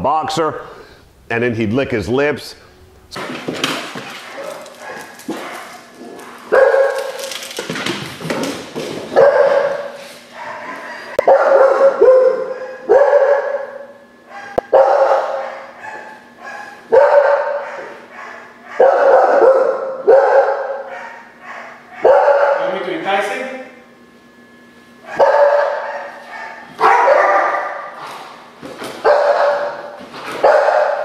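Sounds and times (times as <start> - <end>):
dog barking: 4.2 - 5.9, 6.5 - 7.2, 9.1 - 22.8, 25.0 - 28.0, 29.0 - 31.0.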